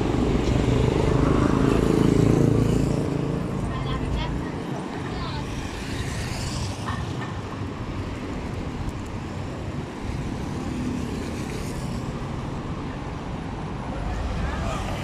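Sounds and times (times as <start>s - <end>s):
rumble of street traffic: 0.0s - 15.0s.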